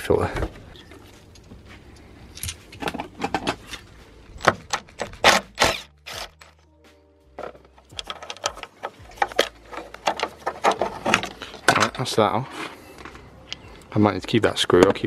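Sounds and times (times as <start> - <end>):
metal tools clinking: 0.8 - 5.2, 6.1 - 6.7, 7.4 - 12.7.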